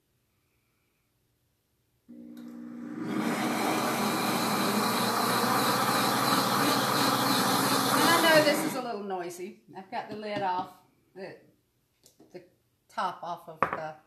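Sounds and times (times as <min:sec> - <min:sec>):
blender motor blending: 0:02.1 - 0:08.8.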